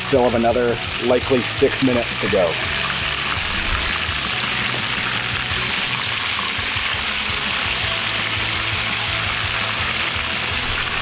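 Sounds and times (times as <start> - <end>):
background music: 0.0 - 11.0
chicken sizzling in a skillet: 0.0 - 11.0.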